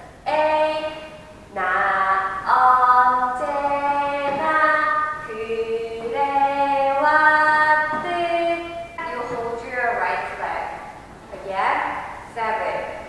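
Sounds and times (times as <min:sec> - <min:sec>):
woman singing sustained notes: 0:00.2 - 0:09.3.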